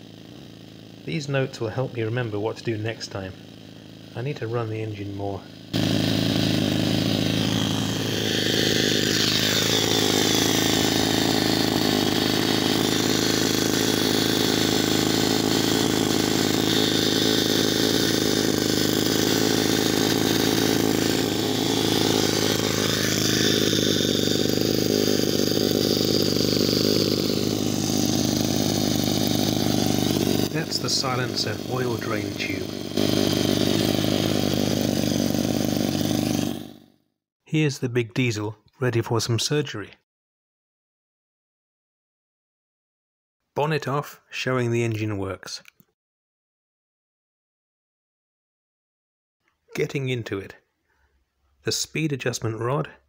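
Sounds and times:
model engine running: 0.0s - 37.0s.

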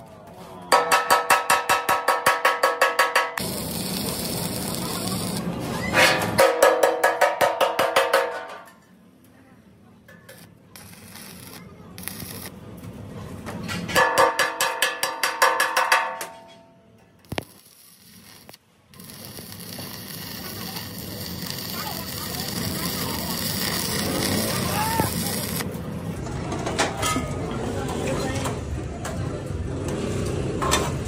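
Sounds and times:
hammer striking ringing steel tank: 13.9s - 16.6s.

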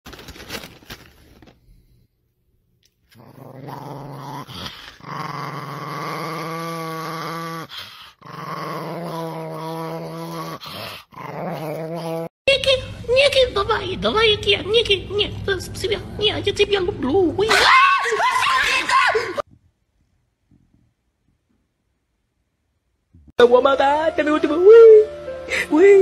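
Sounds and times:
small dog growling: 3.1s - 12.3s.

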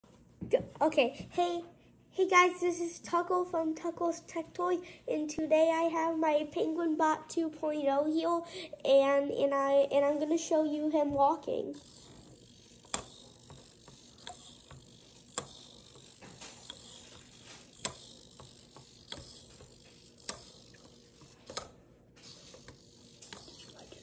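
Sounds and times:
servo motors whirring: 11.8s - 24.0s.

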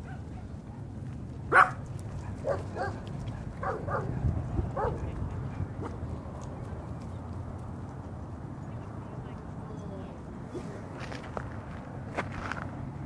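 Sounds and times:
dog barking: 0.0s - 0.5s, 1.5s - 1.8s, 2.4s - 3.0s, 3.6s - 4.2s, 4.8s - 5.0s.

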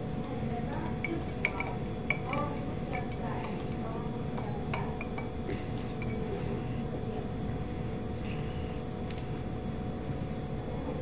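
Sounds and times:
low background rumble and hum: 0.0s - 11.0s
spoon clinking against glass: 0.2s - 6.3s.

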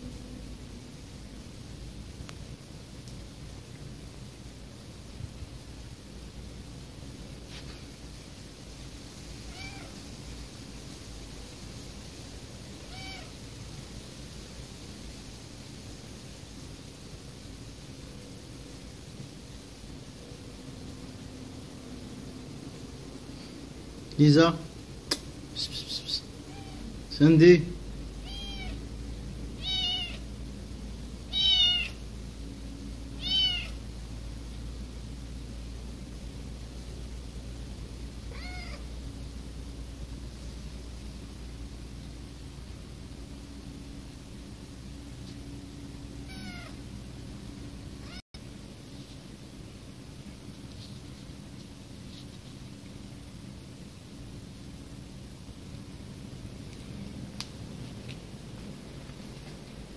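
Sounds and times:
background hiss: 0.0s - 59.9s
kitten meowing: 9.5s - 10.0s, 12.9s - 13.3s, 25.8s - 26.9s, 28.2s - 28.8s, 29.6s - 30.2s, 31.3s - 32.0s, 33.2s - 33.8s, 38.3s - 38.8s, 46.2s - 46.8s.

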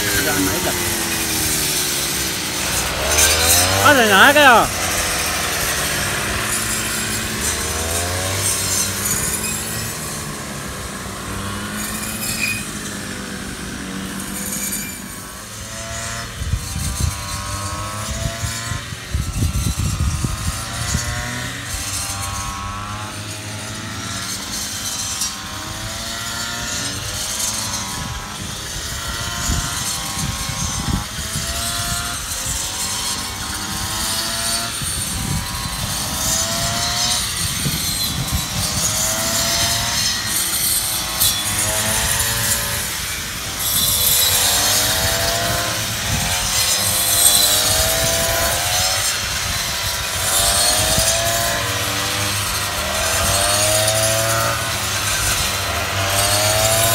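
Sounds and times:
brush cutter engine revving: 0.0s - 56.9s.

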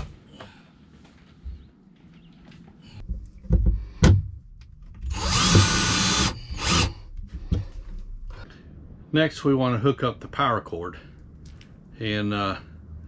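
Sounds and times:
cordless drill running: 5.1s - 7.0s.

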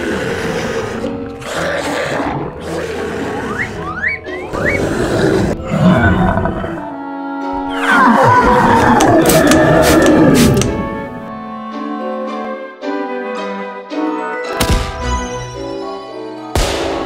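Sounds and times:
cartoon monster roar: 0.0s - 7.0s, 7.7s - 10.8s
background music: 0.0s - 17.0s.

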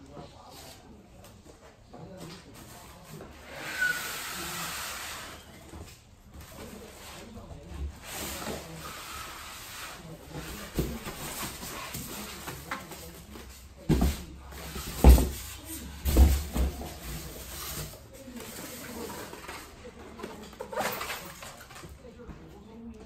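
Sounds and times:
cardboard rustling and scraping: 2.2s - 22.0s
dull thumps on tile floor: 13.9s - 15.4s, 16.0s - 16.9s.

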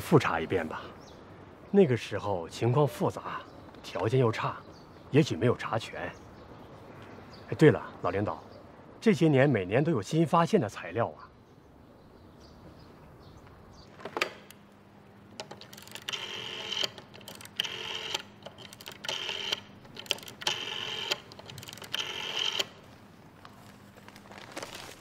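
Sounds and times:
rotary dial whirring and clicking: 15.3s - 22.8s.

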